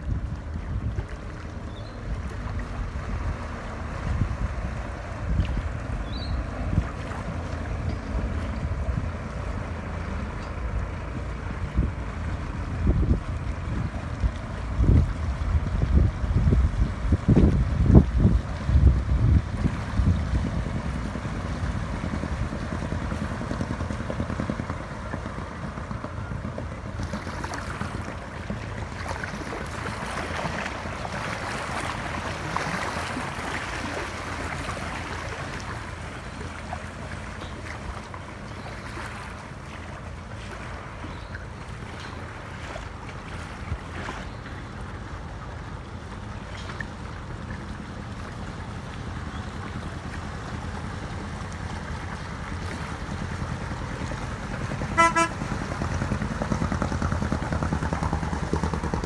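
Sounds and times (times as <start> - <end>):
wind on microphone: 0.0 - 25.1
boat engine running: 0.0 - 59.0.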